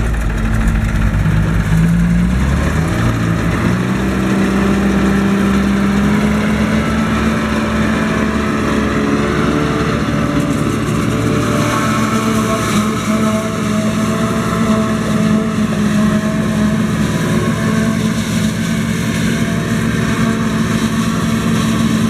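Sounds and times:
diesel engine running hard: 0.0s - 22.0s.

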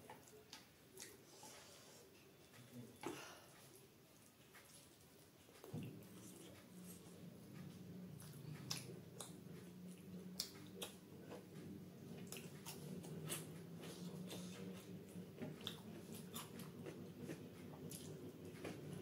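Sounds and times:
faint low hum: 0.0s - 19.0s
wet chewing and lip smacks: 8.2s - 11.0s.

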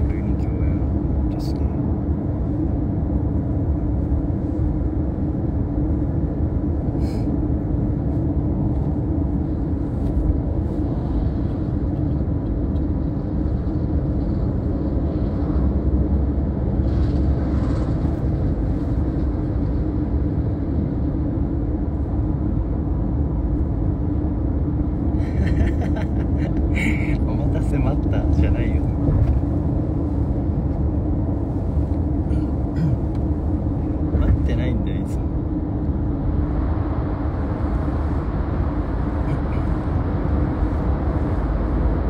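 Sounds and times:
car road and engine rumble: 0.0s - 42.0s.

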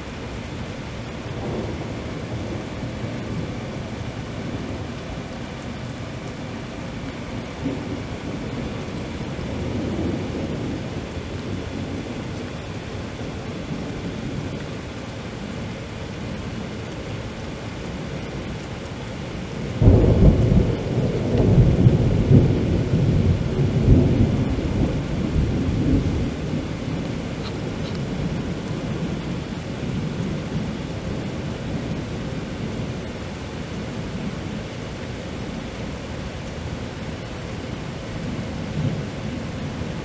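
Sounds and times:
rain hissing: 0.0s - 40.0s
thunder clap rumbling: 1.3s - 12.6s, 19.7s - 32.0s.

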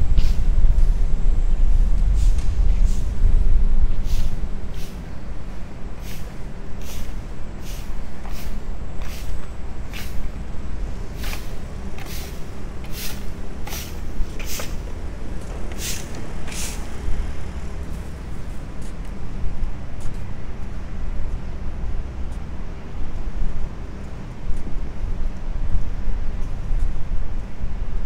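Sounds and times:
steady low rumble: 0.0s - 28.0s
broom sweeping brick paving: 0.1s - 3.2s, 3.8s - 10.4s, 11.0s - 19.1s.

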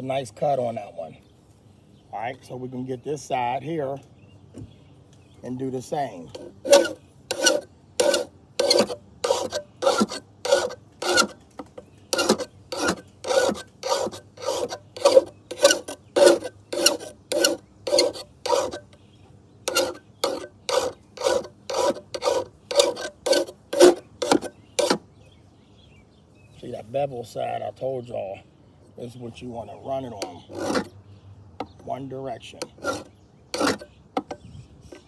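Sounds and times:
hand file rasping on steel blade: 6.3s - 11.4s, 12.1s - 19.0s, 19.7s - 25.0s, 30.2s - 30.9s, 32.6s - 33.9s.

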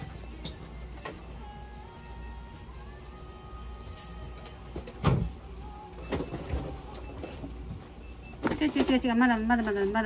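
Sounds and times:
high-pitched electronic tones: 0.0s - 5.4s.

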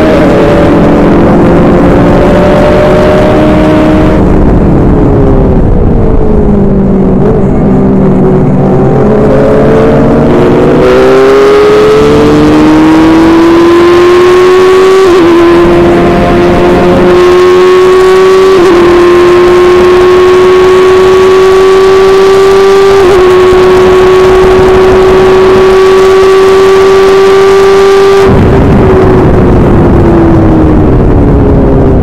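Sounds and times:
broad low rumble: 0.0s - 19.8s, 28.2s - 32.0s
race car engine at full throttle: 0.0s - 32.0s.

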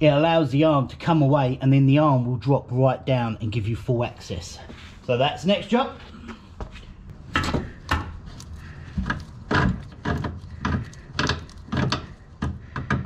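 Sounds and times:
metal clunks and scrapes: 6.3s - 13.0s.

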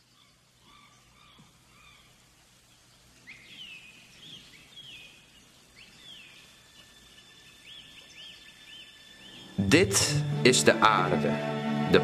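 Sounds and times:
birdsong whistled notes: 3.2s - 10.0s.

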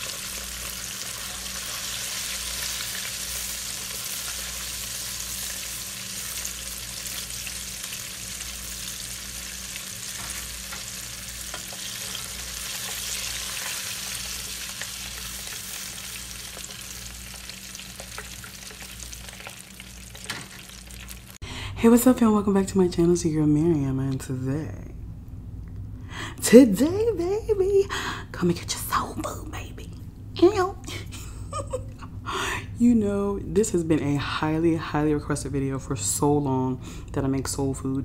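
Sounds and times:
fish deep-frying in oil: 0.0s - 21.4s
low steady hum: 0.0s - 38.0s.

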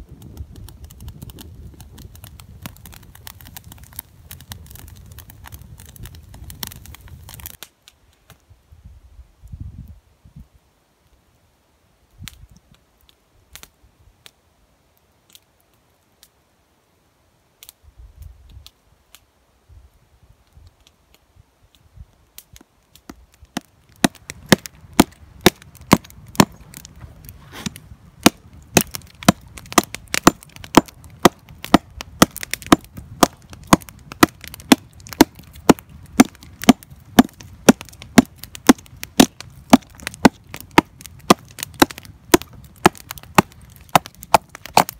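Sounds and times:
hatchet chopping a log: 23.6s - 26.6s, 27.5s - 44.9s.

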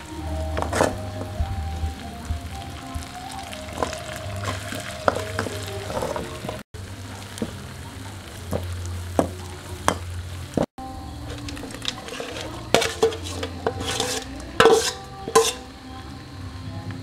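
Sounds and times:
sauce sizzling in a wok: 0.0s - 17.0s
metal spatula scraping a pan: 11.3s - 15.8s.

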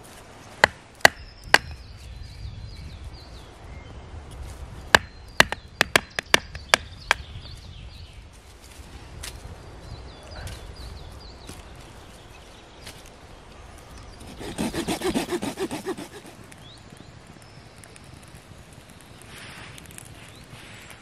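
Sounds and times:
birds chirping faintly: 0.0s - 8.7s, 9.4s - 21.0s.

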